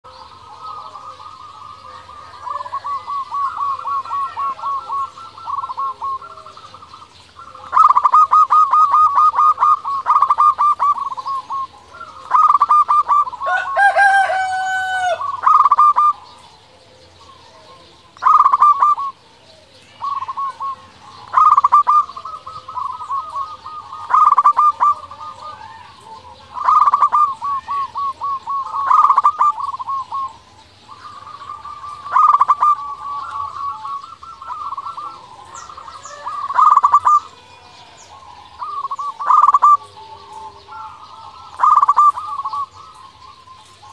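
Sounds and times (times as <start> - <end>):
dove cooing: 0.0 - 43.9
bird call with sliding pitch: 18.2 - 19.2, 19.8 - 43.9.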